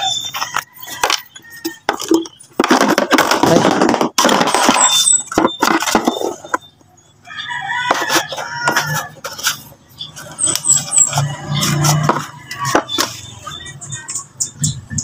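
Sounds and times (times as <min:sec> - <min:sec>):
rooster crowing: 0:07.2 - 0:09.2.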